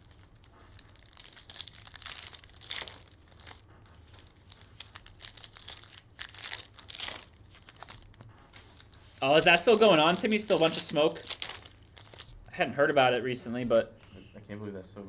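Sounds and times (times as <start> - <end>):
foil wrappers tearing and crinkling: 0.0 - 12.4.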